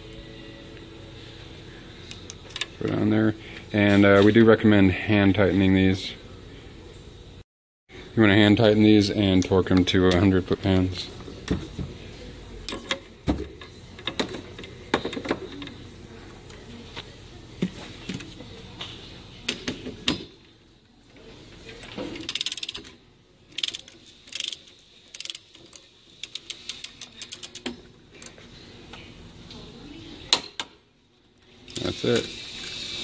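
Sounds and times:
ratchet wrench clicking: 0:22.3 - 0:22.9, 0:23.5 - 0:25.5, 0:26.2 - 0:27.7.

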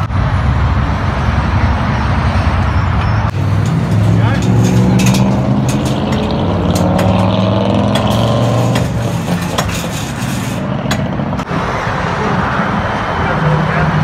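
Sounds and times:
vehicle engine running: 0:00.0 - 0:11.6
highway traffic: 0:00.0 - 0:14.0
steel gate panels clanking: 0:03.3 - 0:11.4.

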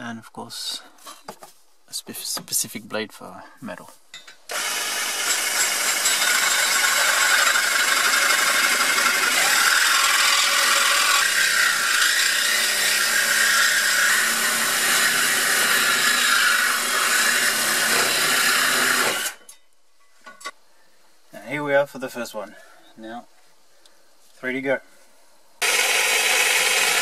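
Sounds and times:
reciprocating saw cutting metal pipe: 0:04.5 - 0:19.4, 0:25.6 - 0:27.0.

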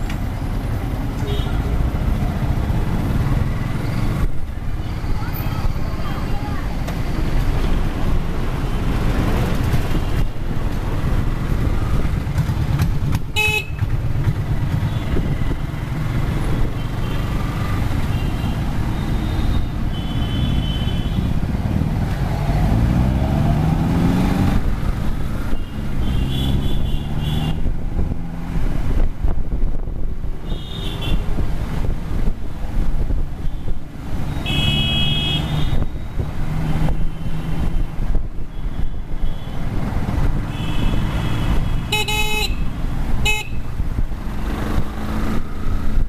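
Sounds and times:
wind and road noise: 0:00.0 - 0:46.0
motorcycle engine: 0:11.1 - 0:19.4
vehicle horn toots: 0:13.4 - 0:13.8, 0:34.4 - 0:35.8, 0:40.5 - 0:43.6.

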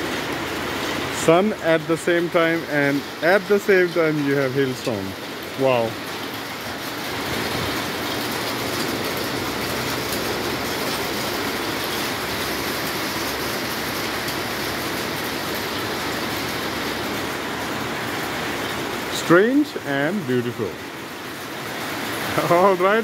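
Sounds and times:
hailstones striking roofs and ground: 0:00.0 - 0:23.0.

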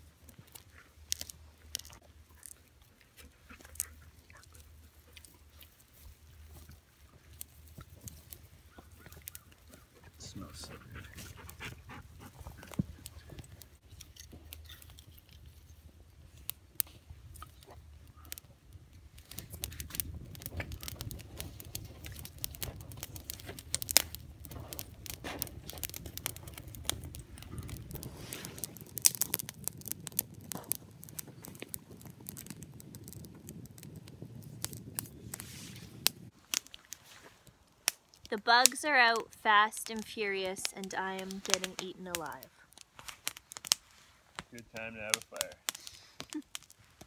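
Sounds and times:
campfire crackling: 0:00.0 - 0:47.0
sharp fire pops: 0:16.0 - 0:47.0.

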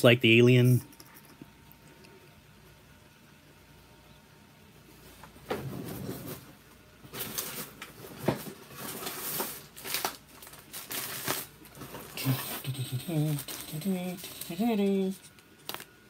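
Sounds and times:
rustling and crinkling: 0:04.9 - 0:14.6.

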